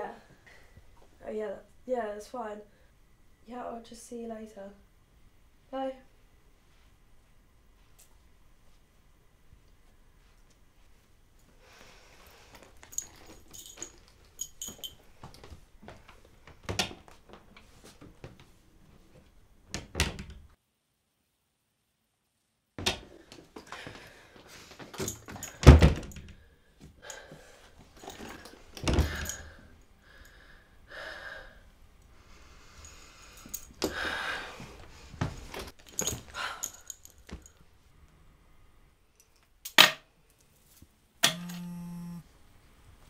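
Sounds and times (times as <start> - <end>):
keys jangling: 12.6 - 15.0, 24.9 - 26.2, 35.8 - 37.6.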